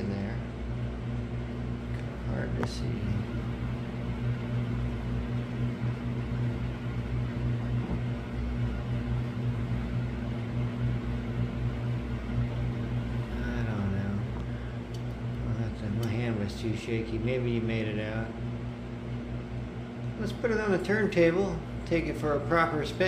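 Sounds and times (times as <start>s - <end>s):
low electrical hum: 0.0s - 23.0s.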